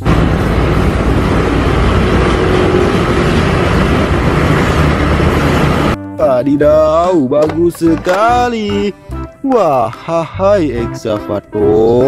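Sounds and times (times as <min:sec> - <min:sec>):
tractor diesel engine under load: 0:00.0 - 0:06.0.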